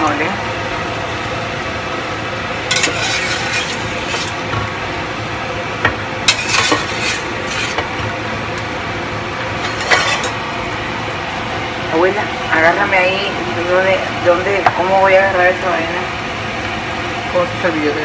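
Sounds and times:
steady hum: 0:00.0 - 0:18.0
wire skimmer scraping a pot: 0:02.7 - 0:04.6, 0:06.2 - 0:08.1, 0:09.6 - 0:10.5.

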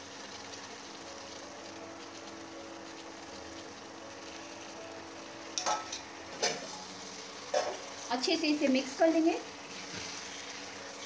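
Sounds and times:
gravy sizzling in a pan: 0:00.0 - 0:11.0
utensils clinking on a pan: 0:05.6 - 0:06.8, 0:07.5 - 0:07.8.

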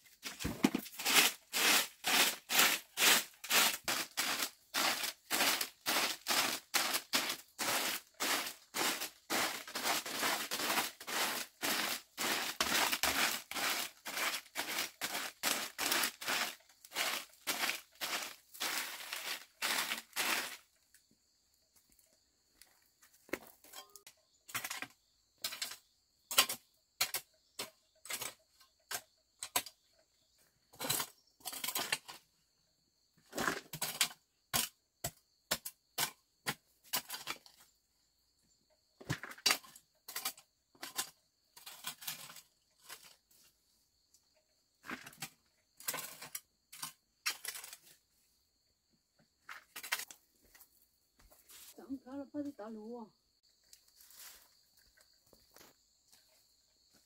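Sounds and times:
crunching and rustling: 0:00.1 - 0:20.8.

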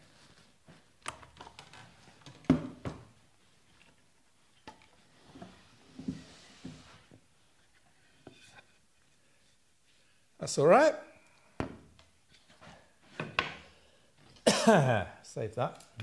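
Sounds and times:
wooden knocks and clatter: 0:13.1 - 0:13.6.

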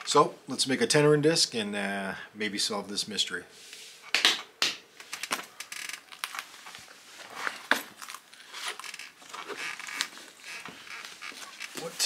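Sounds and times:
rustling and handling noises: 0:05.0 - 0:12.0.

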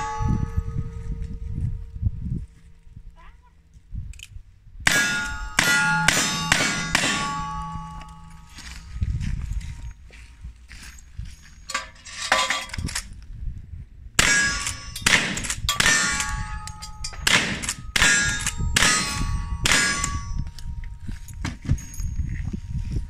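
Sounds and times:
steel plate clanging: 0:00.0 - 0:01.2, 0:04.9 - 0:09.0, 0:11.4 - 0:13.1, 0:14.2 - 0:22.3
faint metallic clinks: 0:05.1 - 0:09.8, 0:14.4 - 0:23.0
rifle shots: 0:05.8 - 0:07.8, 0:14.2 - 0:16.5, 0:17.2 - 0:20.2.

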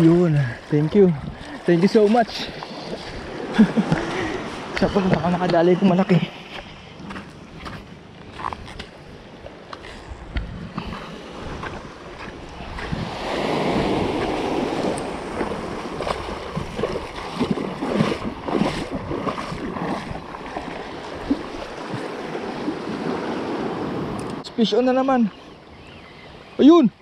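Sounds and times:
wind on microphone: 0:09.9 - 0:24.4
waves breaking over rocks: 0:10.4 - 0:24.4.

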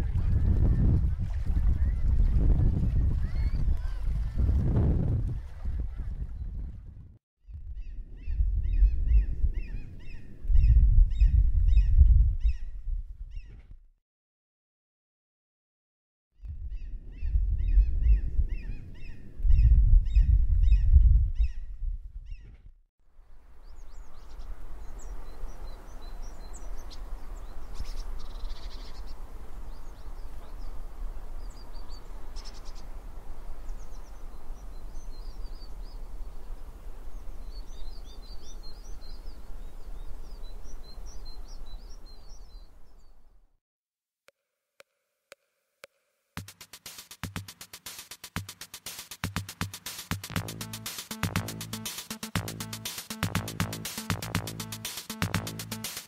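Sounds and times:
wind rushing over microphone: 0:00.0 - 0:13.6, 0:16.4 - 0:22.6
small birds chirping: 0:23.4 - 0:43.4
electronic music with steady beat: 0:45.8 - 0:56.0.

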